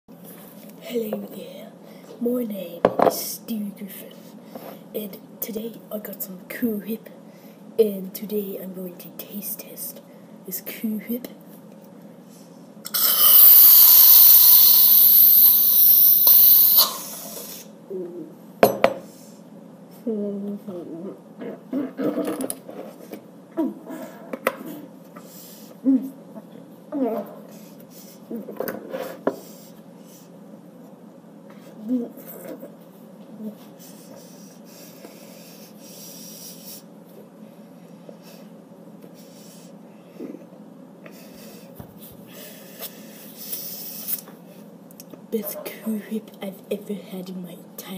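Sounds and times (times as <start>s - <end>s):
low steady hum: 0.1s - 14.1s, 16.2s - 47.9s
aerosol can hissing: 12.9s - 17.5s.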